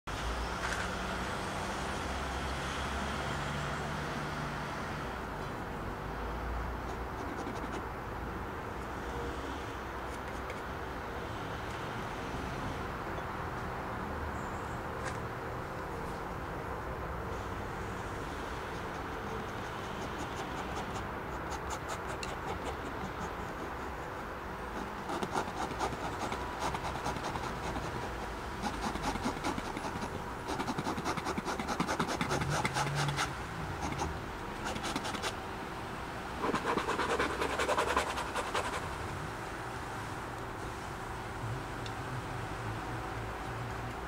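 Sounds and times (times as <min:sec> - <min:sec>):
palette knife scraping paint: 0:06.9 - 0:07.9, 0:18.8 - 0:35.4, 0:36.4 - 0:38.9.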